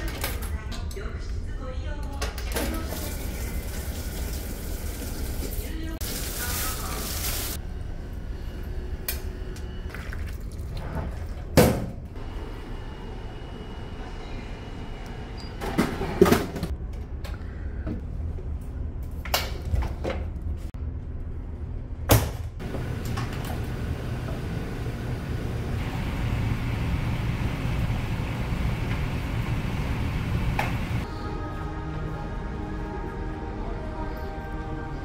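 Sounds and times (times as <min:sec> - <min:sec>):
low engine hum: 0:22.6 - 0:31.0.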